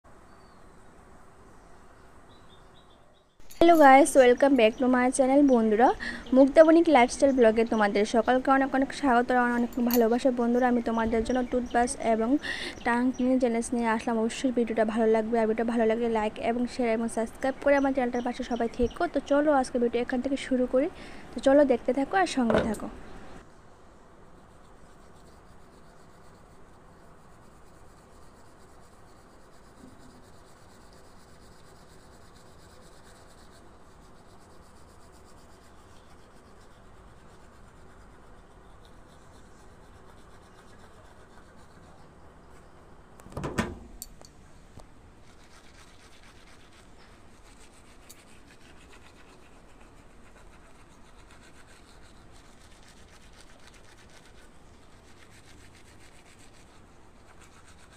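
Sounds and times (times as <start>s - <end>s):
toothbrush scrubbing teeth: 24.6s - 42.0s, 45.2s - 57.9s.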